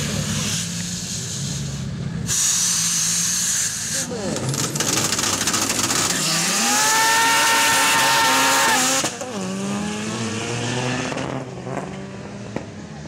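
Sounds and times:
car engine revving hard: 4.3s - 12.7s.

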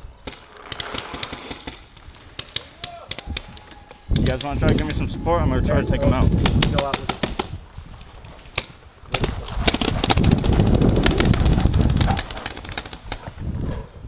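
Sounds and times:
paintball markers popping: 2.4s - 5.0s
wind rumble on camera: 3.2s - 8.4s, 9.1s - 12.4s, 13.0s - 14.0s.

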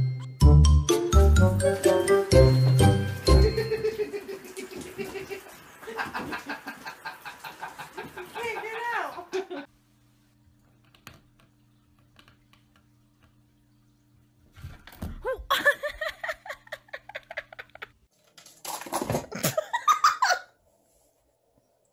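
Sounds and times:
person laughing in bursts: 3.2s - 9.7s, 15.3s - 18.0s, 19.3s - 20.5s.

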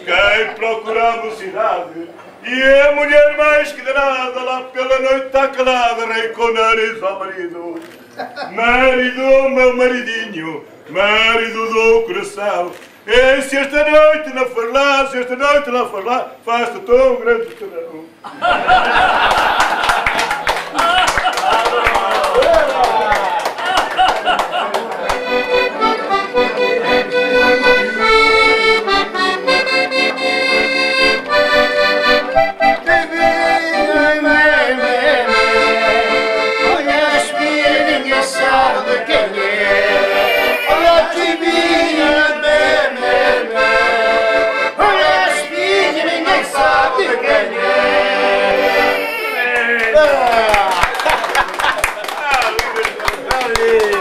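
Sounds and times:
button accordions playing: 25.1s - 49.6s.

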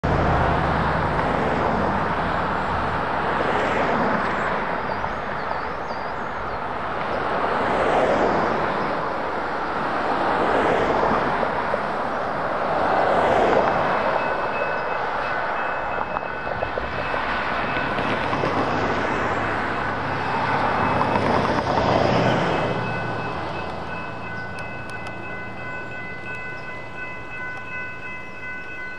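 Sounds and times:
cars and trucks passing: 0.0s - 28.9s
railroad crossing warning bell: 8.7s - 28.9s.

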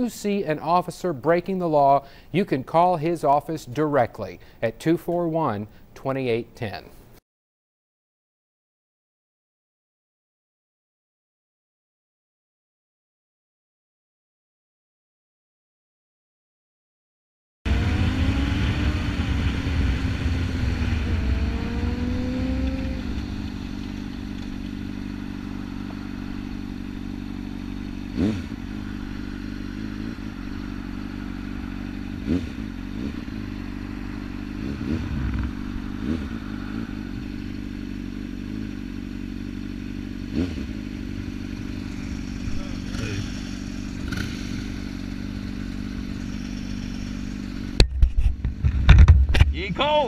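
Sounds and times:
motorcycle engine running and idling: 17.7s - 49.4s.

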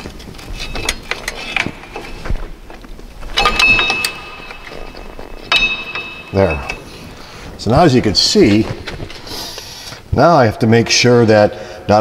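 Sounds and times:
metal clinks and knocks: 0.0s - 7.2s
loud metallic clank: 3.2s - 7.2s.

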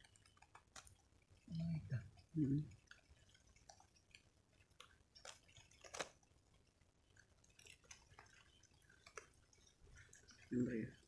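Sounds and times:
faint drips: 0.0s - 11.0s.

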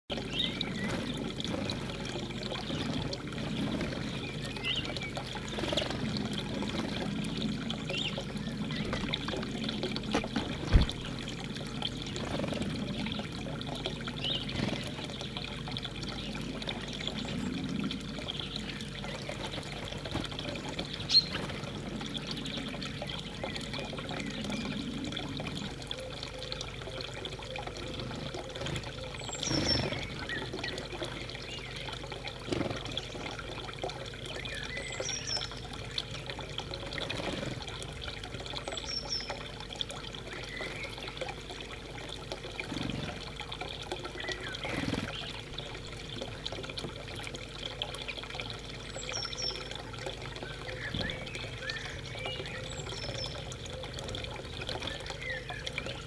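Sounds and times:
running water trickling: 0.0s - 56.0s.

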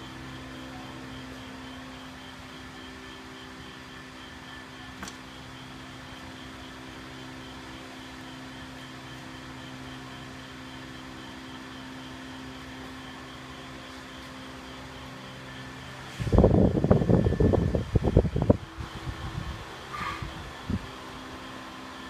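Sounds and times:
electric motor hum: 0.0s - 22.0s.

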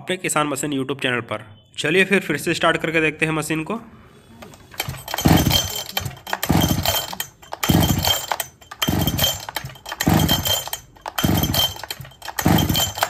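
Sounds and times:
chainsaw engine cranking: 4.4s - 13.0s.

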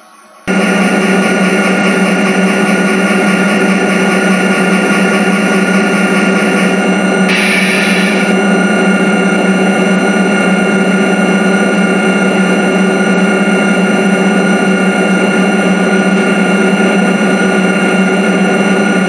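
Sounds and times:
model train rolling: 0.0s - 8.4s.

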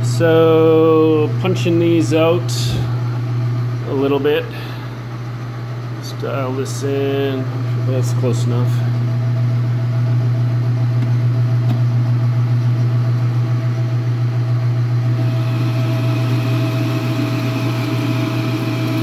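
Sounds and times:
metal lathe motor hum and whine: 14.9s - 19.0s.

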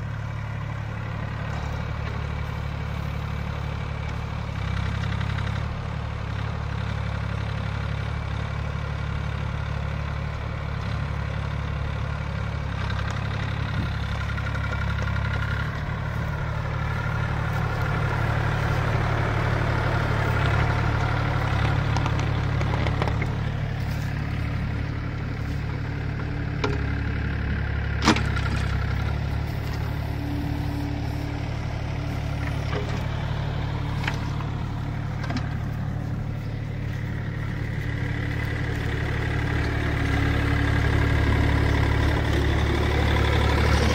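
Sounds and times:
diesel engine idling: 0.0s - 43.9s.

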